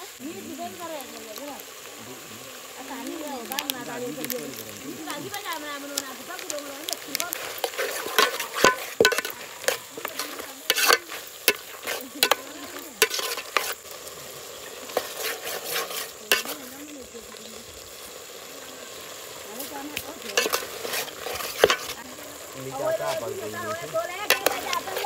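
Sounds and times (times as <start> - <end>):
food sizzling: 0.0 - 25.0
spoon scraping against pot: 7.3 - 13.8, 14.9 - 16.7, 20.3 - 22.0, 24.3 - 25.0.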